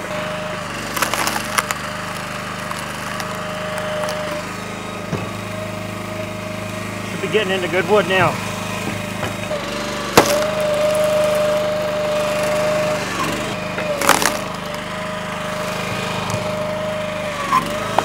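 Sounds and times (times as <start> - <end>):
hydraulic whine: 0.0 - 18.0
log splitter engine humming: 0.0 - 18.0
wood splitting cracks: 0.7 - 4.4, 10.1 - 14.8.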